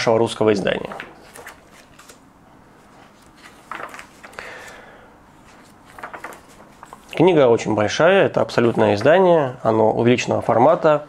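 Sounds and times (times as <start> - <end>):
book pages turning: 0.7 - 7.2.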